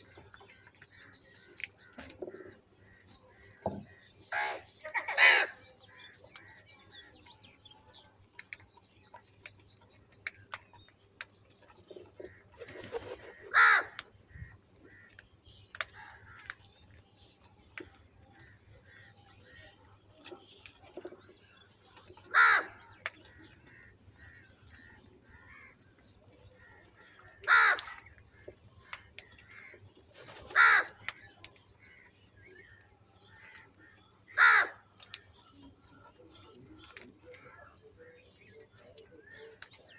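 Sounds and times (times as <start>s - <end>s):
crows cawing: 4.3s - 5.6s, 12.3s - 14.1s, 22.3s - 22.8s, 26.6s - 28.1s, 30.5s - 31.2s, 33.3s - 34.8s
soft crow calls: 12.3s - 15.2s, 22.3s - 25.9s, 26.6s - 29.8s, 30.4s - 35.3s.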